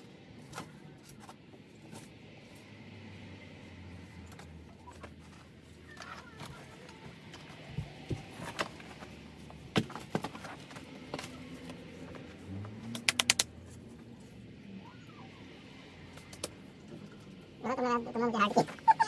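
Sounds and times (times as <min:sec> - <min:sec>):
sharp clicks: 0:12.9 - 0:13.5.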